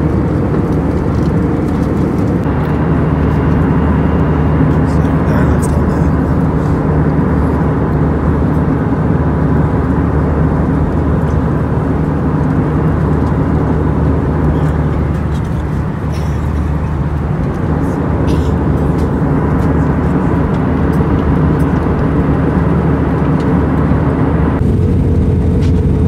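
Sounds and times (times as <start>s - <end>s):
jet engine cabin drone: 0.0s - 26.0s
low hum: 0.0s - 26.0s.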